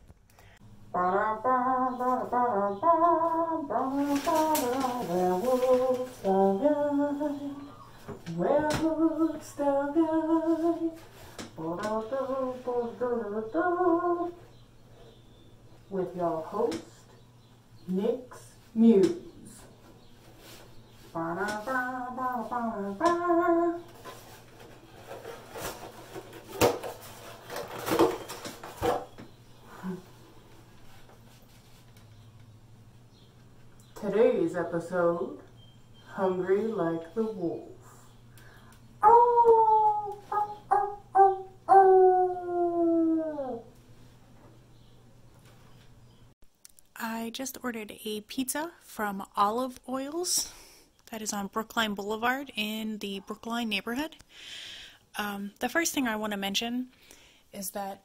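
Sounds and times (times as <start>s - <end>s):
rubber mask rubbing and rustling: 3.8s - 6.8s, 23.5s - 29.2s, 30.6s - 32.2s.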